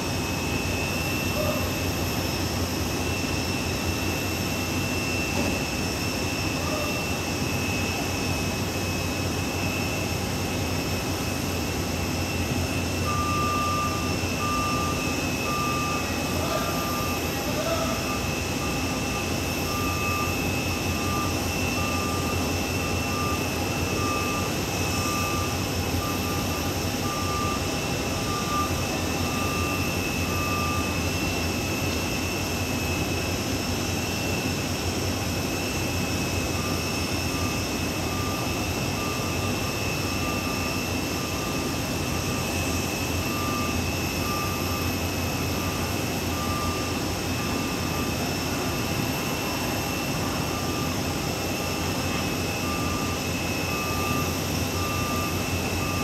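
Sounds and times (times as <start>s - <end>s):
jet engine whine and rumble: 0.0s - 56.0s
warning beeper: 12.4s - 31.9s.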